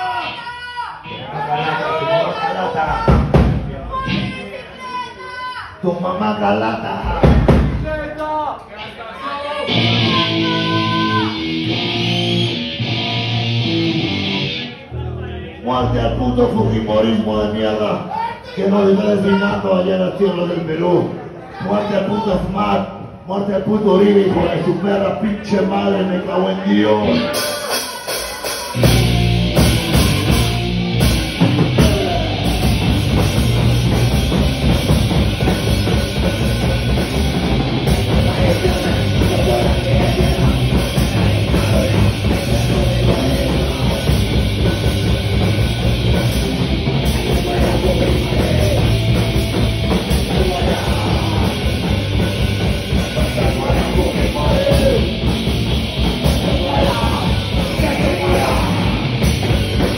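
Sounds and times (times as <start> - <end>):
fast drum beat: 2.9 - 3.9, 7.0 - 8.0, 27.4 - 59.9
electric guitar: 9.6 - 15.2, 27.0 - 59.9
bass guitar: 9.7 - 17.8, 26.9 - 59.9.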